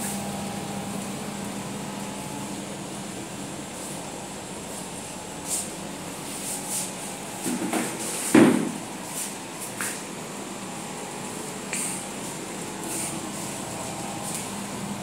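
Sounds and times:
air conditioner humming: 0.0 - 15.0.

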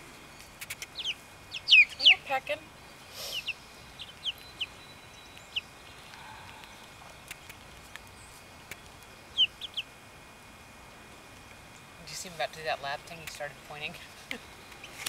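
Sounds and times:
chicks peeping: 0.6 - 9.9.

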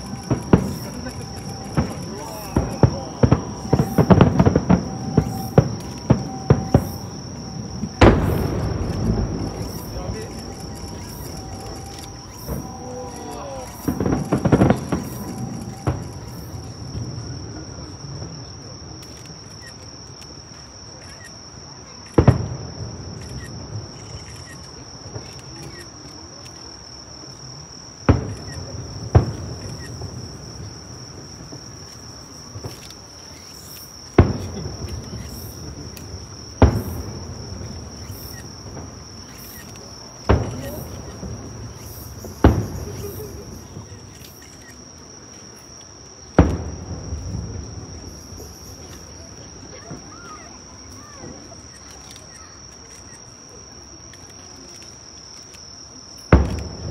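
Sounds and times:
firework shells booming: 0.0 - 18.4, 22.2 - 23.9, 28.0 - 44.1, 46.2 - 50.1, 56.3 - 56.9
night insects droning: 0.0 - 56.9.

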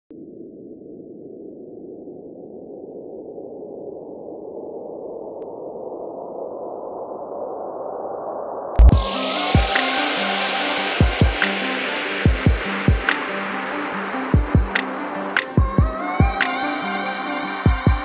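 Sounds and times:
synthesized noise riser: 5.4 - 18.0.

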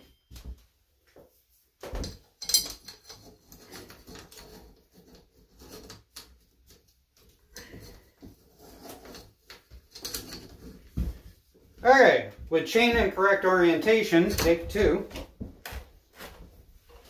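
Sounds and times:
tools clinking and rattling: 1.8 - 11.3, 13.8 - 15.3
metal chain clanking: 2.0 - 4.5, 9.9 - 10.8.

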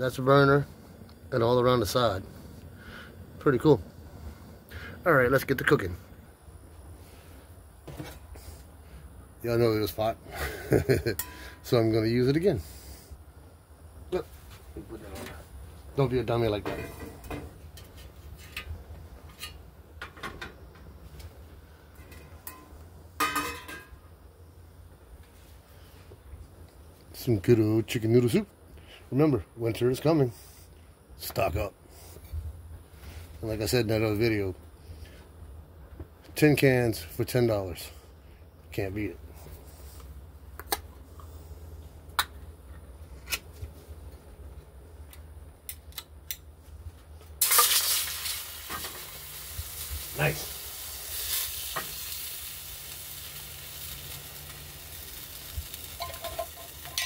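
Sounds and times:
soup sizzling in hot pan: 47.4 - 57.0
metal grate clicking and clinking: 56.0 - 57.0.

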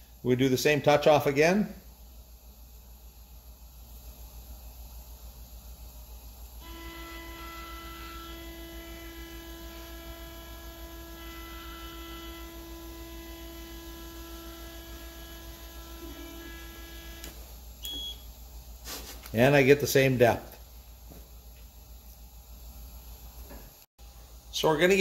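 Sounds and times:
low electrical hum: 0.0 - 25.0
stepper motor whining: 6.6 - 17.4.

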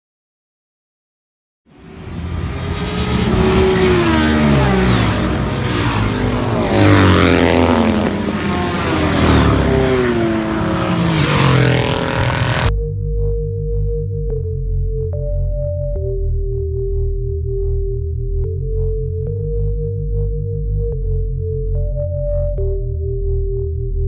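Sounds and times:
racing motorcycles passing: 1.8 - 12.7.

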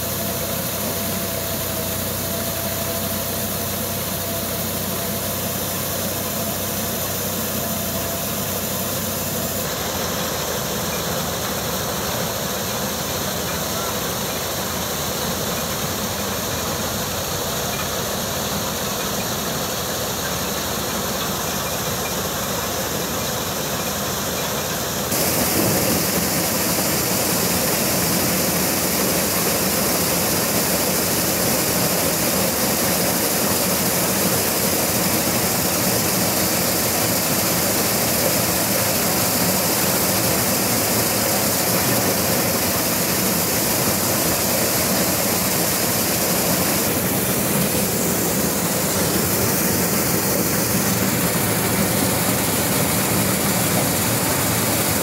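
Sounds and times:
tractor engine: 0.0 - 55.0
threshing drum working through cobs: 25.1 - 55.0.

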